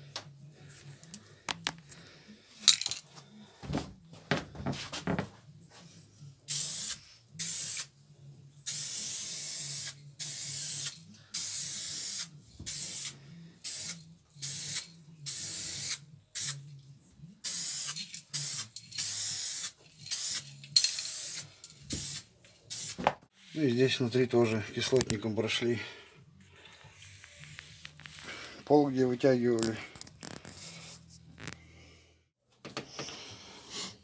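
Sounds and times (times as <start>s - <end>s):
aerosol can spraying hisses: 6.5s - 7.9s, 8.7s - 16.6s, 17.4s - 23.5s.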